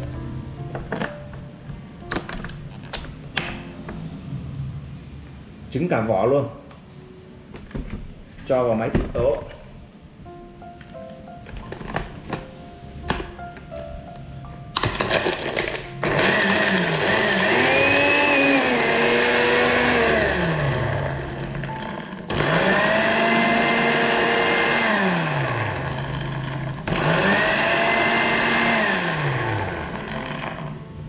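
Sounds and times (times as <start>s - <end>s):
blender motor grinding: 14.8s - 30.8s.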